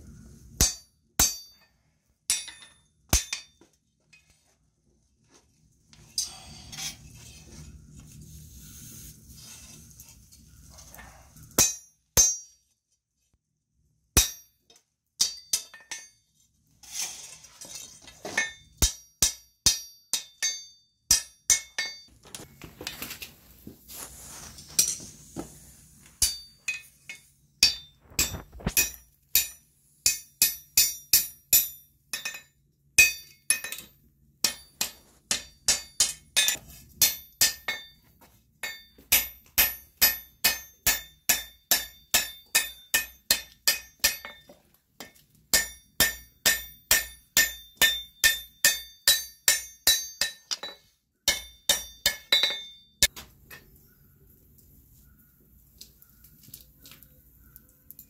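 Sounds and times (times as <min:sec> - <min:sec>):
anvil ringing: 0:00.6 - 0:01.7, 0:11.6 - 0:12.6, 0:18.4 - 0:22.1, 0:26.2 - 0:26.9, 0:38.6 - 0:44.5, 0:45.5 - 0:53.1
hammer striking hot steel: 0:00.6 - 0:01.7, 0:02.3 - 0:03.7, 0:11.5 - 0:12.6, 0:14.2 - 0:16.2, 0:18.4 - 0:22.1, 0:26.2 - 0:38.0, 0:38.6 - 0:53.6.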